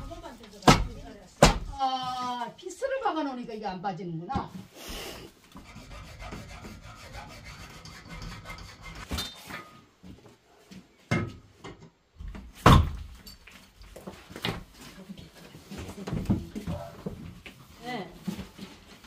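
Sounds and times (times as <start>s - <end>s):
wood scraping and rasping: 5.5s - 9.1s.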